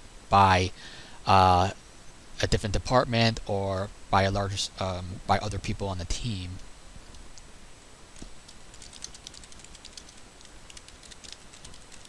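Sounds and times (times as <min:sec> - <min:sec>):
computer keyboard typing: 0:08.7 - 0:12.0.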